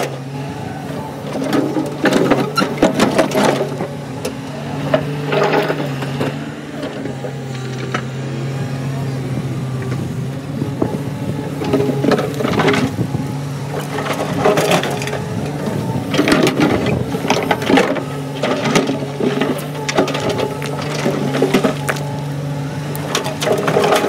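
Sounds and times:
diesel engine running: 0:00.0 - 0:24.0
rocks tumbling into steel trailer: 0:01.2 - 0:06.5, 0:13.6 - 0:24.0
rocks clattering in steel bucket: 0:13.8 - 0:22.2, 0:22.9 - 0:24.0.

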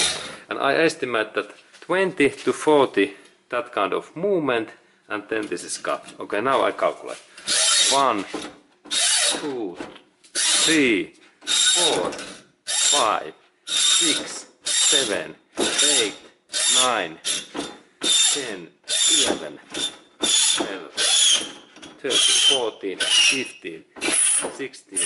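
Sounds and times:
hacksaw rasping through steel: 0:00.0 - 0:00.4, 0:10.4 - 0:10.9, 0:13.7 - 0:25.0.

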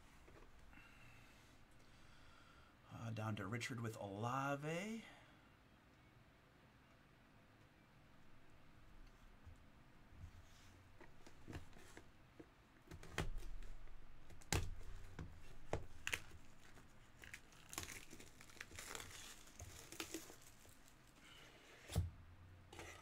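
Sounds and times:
plastic wrap crackling and ripping: 0:12.9 - 0:21.3.

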